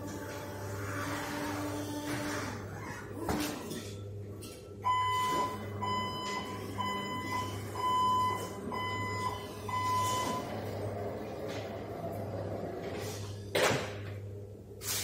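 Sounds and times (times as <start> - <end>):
vehicle warning beeps: 4.8 - 10.8.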